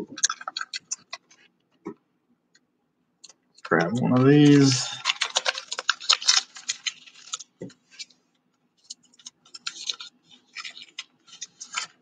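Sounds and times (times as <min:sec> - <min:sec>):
foil wrapper crinkling: 0:03.9 - 0:08.2, 0:08.8 - 0:12.0.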